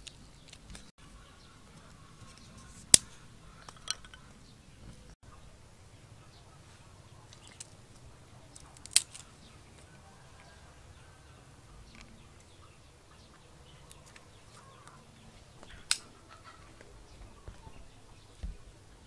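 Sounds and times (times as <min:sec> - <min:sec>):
dry twigs snapping and clicking: 0:00.0 - 0:00.9, 0:02.3 - 0:04.2, 0:07.3 - 0:09.3, 0:15.6 - 0:16.1.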